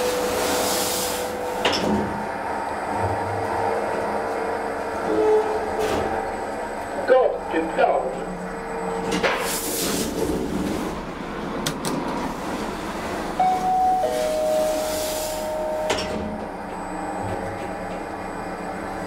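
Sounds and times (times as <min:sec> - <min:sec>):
elevator machine whine: 0:00.0 - 0:19.0
elevator ride rushing: 0:00.0 - 0:19.0
sharp click of elevator stopping: 0:15.6 - 0:16.5.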